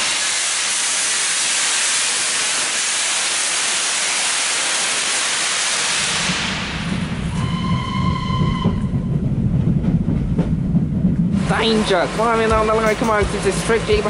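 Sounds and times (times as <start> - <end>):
steam hissing from locomotive: 0.0 - 7.8
train rumbling: 0.0 - 14.0
steam locomotive whistle: 7.3 - 9.0.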